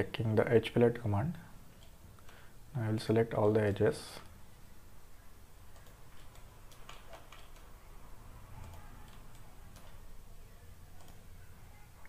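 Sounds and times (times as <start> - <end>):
low steady hum: 0.0 - 12.0
computer mouse clicks: 5.7 - 7.8, 8.6 - 10.0, 11.0 - 11.2.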